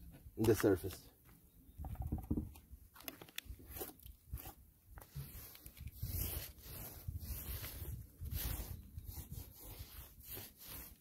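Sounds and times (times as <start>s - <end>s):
scratchy rubbing strokes: 3.6s - 11.0s.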